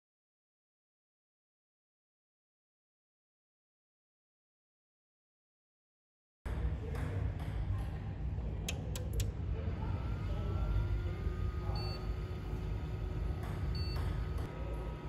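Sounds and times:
instrument clicks: 8.7s - 9.3s
high beeps: 11.7s - 12.1s, 13.7s - 14.2s.

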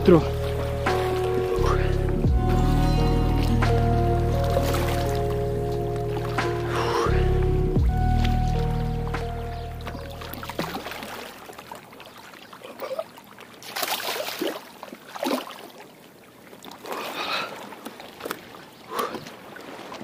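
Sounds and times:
small waves lapping on rocks: 10.2s - 20.0s.

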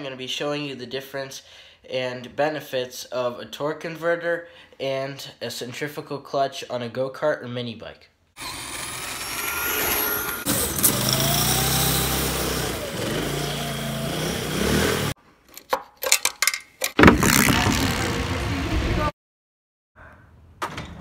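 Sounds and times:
motor running: 8.4s - 15.1s.

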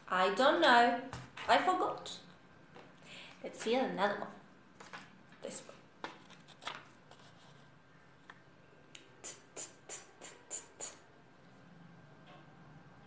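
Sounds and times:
woman whispering t sounds: 9.2s - 11.0s.

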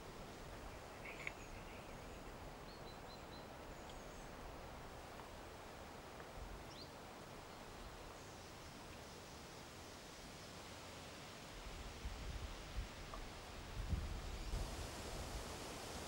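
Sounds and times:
faint outdoor background hiss: 0.0s - 16.0s
faint bird chirps: 0.6s - 4.4s.

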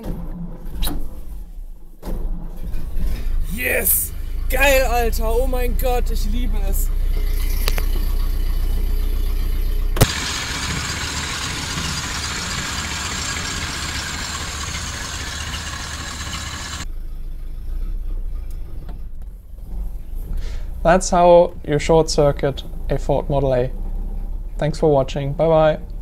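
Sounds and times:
car engine idling: 3.7s - 17.1s.

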